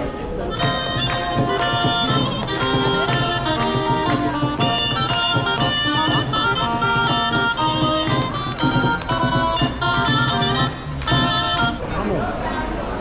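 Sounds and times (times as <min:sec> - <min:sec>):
wind instruments playing melody: 0:00.4 - 0:12.2
steady drum beat: 0:00.5 - 0:11.9.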